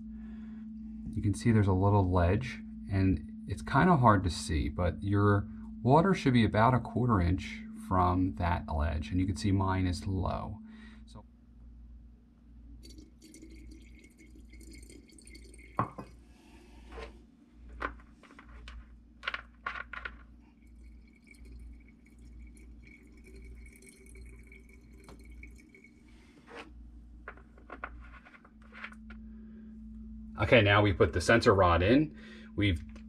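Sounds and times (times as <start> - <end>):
faint low hum: 0.0 - 33.0
glass jar handled: 12.8 - 16.2, 17.7 - 26.7, 27.3 - 29.2
water trickling into battery: 12.8 - 16.2, 20.5 - 26.2
clicks and knocks of caps: 17.7 - 20.3.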